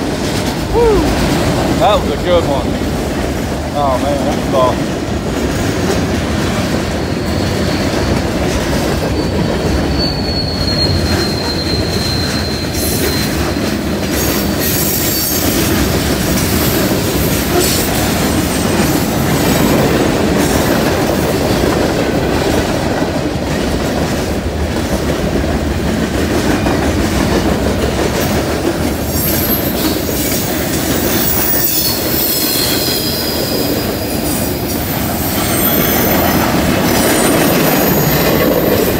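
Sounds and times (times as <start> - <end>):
train wheels rumbling on rail: 0.0 - 38.9
high wheel squeal: 7.0 - 8.4, 9.0 - 15.7, 29.1 - 38.9.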